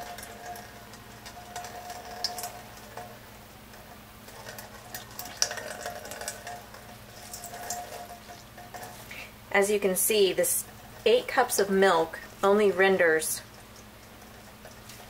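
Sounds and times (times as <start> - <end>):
liquid dripping into metal colander: 0.0 - 9.2, 13.4 - 15.0
faint hum: 0.0 - 15.0.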